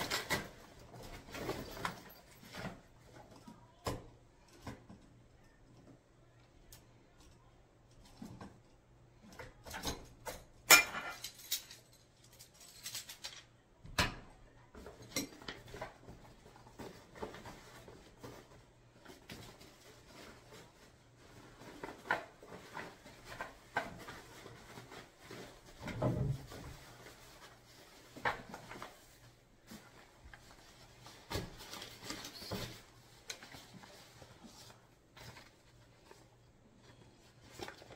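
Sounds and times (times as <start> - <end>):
metal poles clinking and knocking: 9.6 - 13.5.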